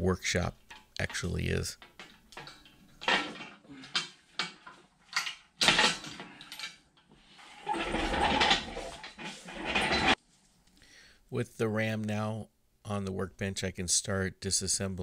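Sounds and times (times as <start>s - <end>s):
steel chain clanking on metal: 1.8s - 6.8s, 7.6s - 10.2s
chain clattering rattle: 7.7s - 10.2s.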